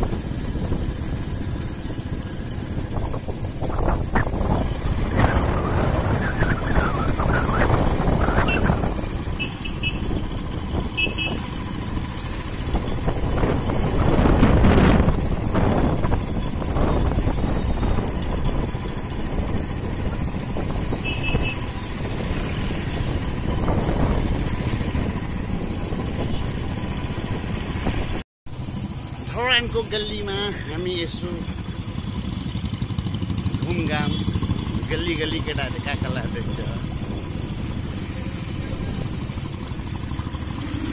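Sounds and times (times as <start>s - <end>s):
road traffic rumble: 0.0s - 40.9s
vehicle passing by: 2.2s - 17.4s, 36.0s - 40.9s.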